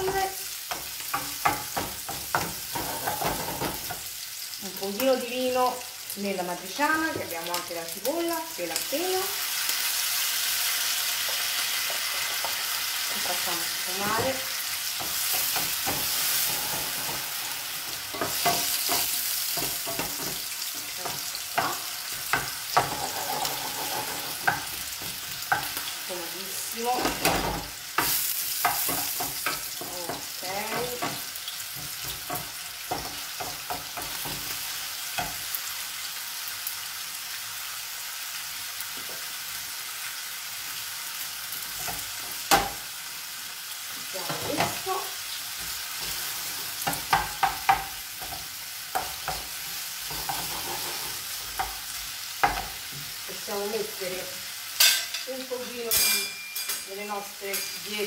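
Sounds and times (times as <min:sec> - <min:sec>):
wooden spoon knocking on pans: 0:00.0 - 0:04.1, 0:15.0 - 0:17.3, 0:18.1 - 0:25.9, 0:27.0 - 0:34.6, 0:46.8 - 0:50.6, 0:51.5 - 0:53.1
meat sizzling in pans: 0:00.0 - 0:58.0.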